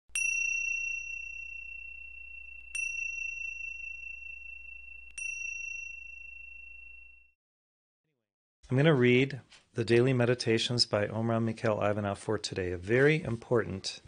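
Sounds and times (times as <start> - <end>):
high bell-like chime: 0.1 - 7.4.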